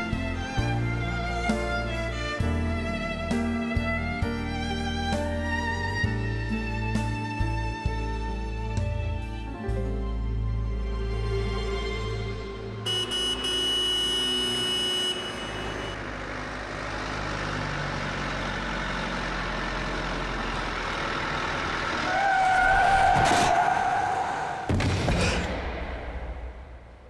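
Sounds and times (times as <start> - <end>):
city street traffic: 7.8 - 24.8
car horn: 12.8 - 16.0.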